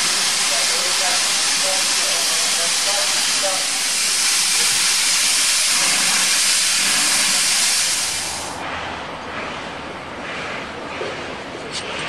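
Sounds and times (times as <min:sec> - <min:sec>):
steam hissing loudly: 0:00.0 - 0:08.6
outdoor background: 0:00.0 - 0:12.0.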